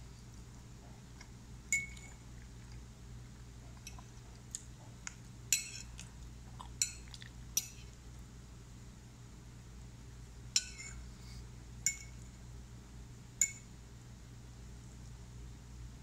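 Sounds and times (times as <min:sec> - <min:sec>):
fork clinking and scraping on plate: 0:05.5 - 0:06.0, 0:10.6 - 0:11.0.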